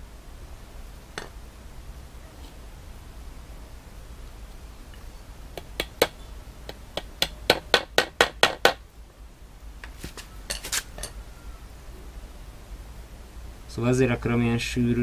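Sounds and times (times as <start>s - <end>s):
hammer driving nails into wood: 7.0s - 8.8s.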